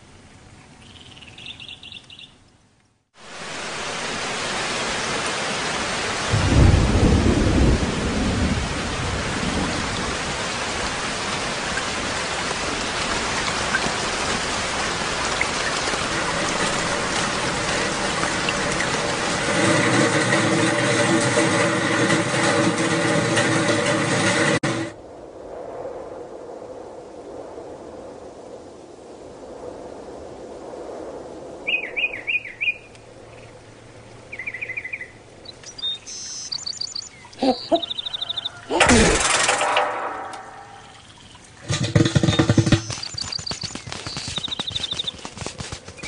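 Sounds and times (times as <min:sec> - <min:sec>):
faint bird chirps: 0:00.8 - 0:02.4, 0:31.7 - 0:33.6, 0:34.3 - 0:38.8, 0:42.4 - 0:45.2
heavy rain: 0:03.2 - 0:25.1, 0:35.1 - 0:46.0
low rumble of thunder: 0:06.3 - 0:34.4.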